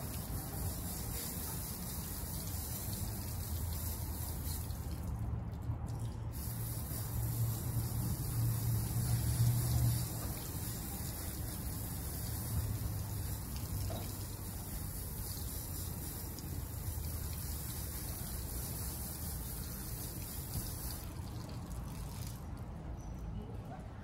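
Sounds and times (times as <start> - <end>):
water running and splashing: 0.0 - 22.8.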